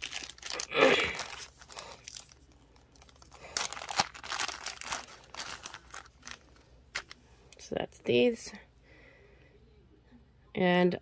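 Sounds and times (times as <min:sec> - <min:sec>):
plastic bag crinkling: 0:00.0 - 0:07.2.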